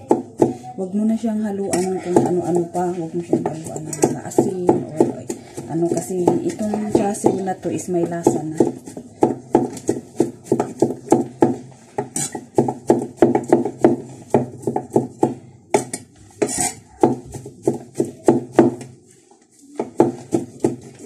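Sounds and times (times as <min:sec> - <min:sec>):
cleaver chopping on wooden board: 0:08.6 - 0:18.8
blade scraping board: 0:16.4 - 0:16.8.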